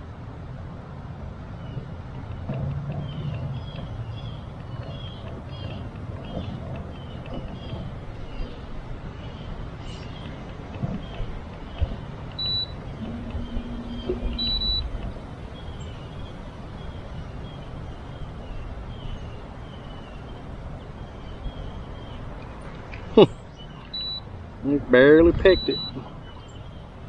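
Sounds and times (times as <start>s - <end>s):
water around a boat: 0.0s - 27.0s
wind: 0.0s - 27.0s
low hum: 12.3s - 17.1s
short high electronic beeps: 12.4s - 15.1s.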